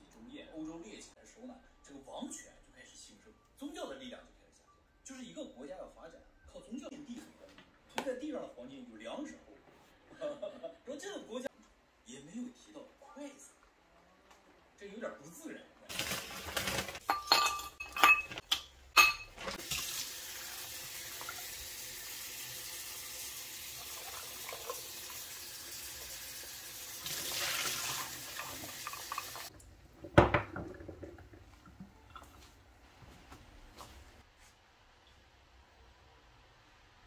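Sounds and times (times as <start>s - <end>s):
plastic bag crinkling: 15.9s - 17.0s
tap water running into bowl: 19.4s - 32.5s.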